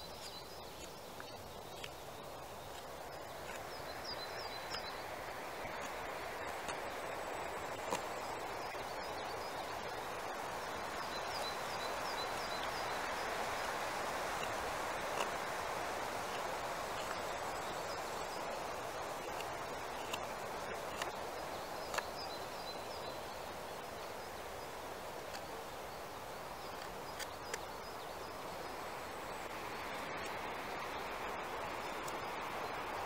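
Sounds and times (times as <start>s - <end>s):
outdoor background hiss: 0.0s - 33.0s
knife carving wood clicks: 0.2s - 2.0s, 14.4s - 15.4s, 19.2s - 21.2s, 21.8s - 22.1s, 26.7s - 27.7s.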